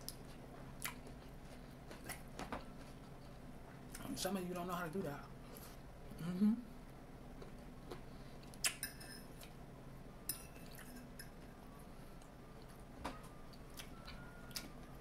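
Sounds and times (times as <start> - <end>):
chewing food: 0.0 - 4.1, 7.3 - 8.8, 13.5 - 15.0
metal fork clinking on plate: 10.3 - 11.4.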